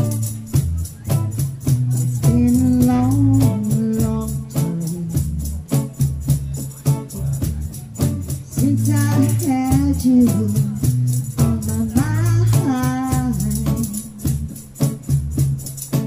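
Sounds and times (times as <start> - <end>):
person singing: 0.0 - 6.0, 8.0 - 14.6
live band music: 0.0 - 16.0.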